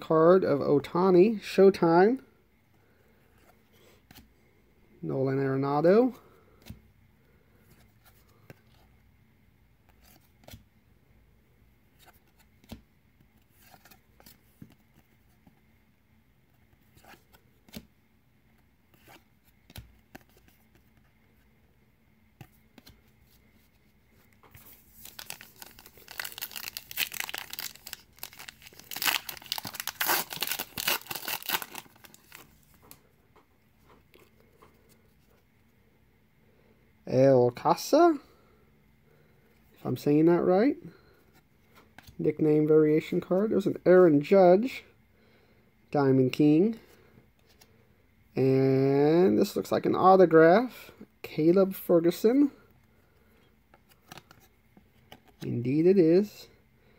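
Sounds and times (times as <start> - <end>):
trading cards clicking and rustling: 24.4 - 33.0
card pack wrapper tearing: 24.8 - 32.5.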